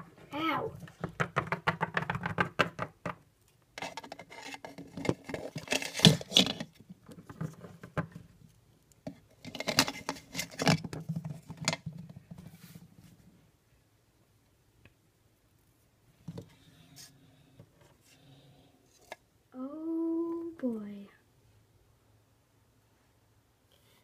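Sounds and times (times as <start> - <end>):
plastic toys tapping on wood: 0.9 - 3.2.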